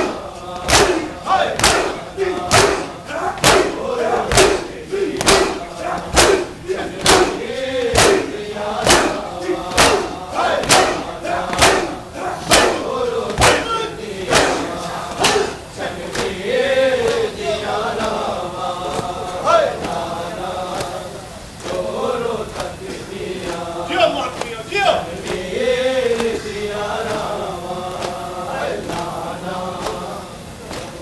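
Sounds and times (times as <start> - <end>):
hands slapping chests: 0.0 - 13.7
men chanting: 0.0 - 31.0.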